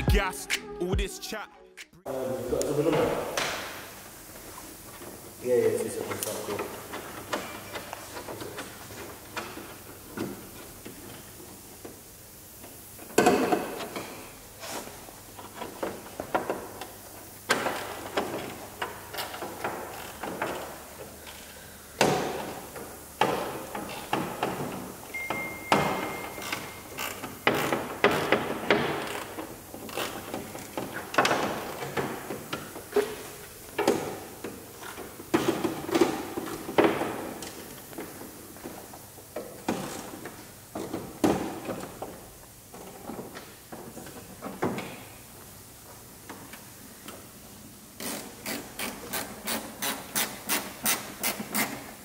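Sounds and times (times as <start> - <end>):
faint steady high tone: 25.1 - 26.9.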